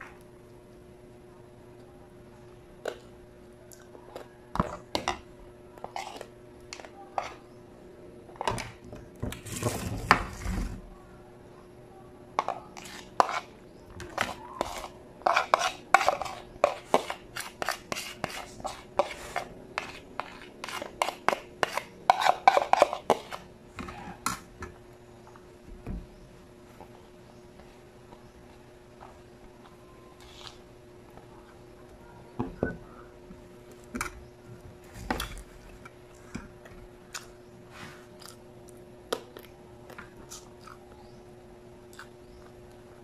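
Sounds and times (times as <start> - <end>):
man chewing food: 33.3 - 37.4, 38.0 - 41.1, 41.8 - 43.0.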